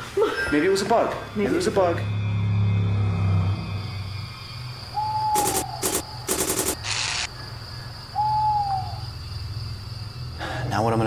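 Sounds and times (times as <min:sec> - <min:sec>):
owl hooting: 0:04.8 - 0:07.3, 0:08.1 - 0:09.1
harsh noise bursts: 0:05.4 - 0:07.3.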